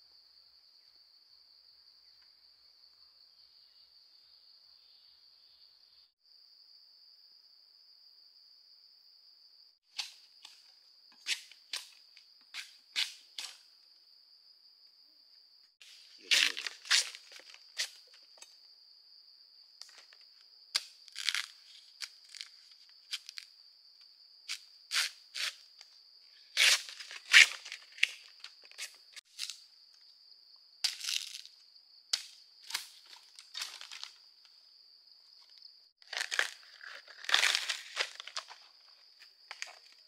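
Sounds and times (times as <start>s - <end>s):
crunching of dry material: 15.8s - 18.4s, 20.8s - 23.5s, 35.4s - 40.0s.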